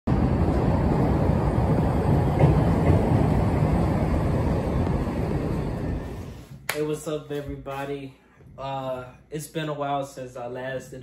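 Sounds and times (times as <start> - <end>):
elevated train rumbling on track: 0.1 - 6.6.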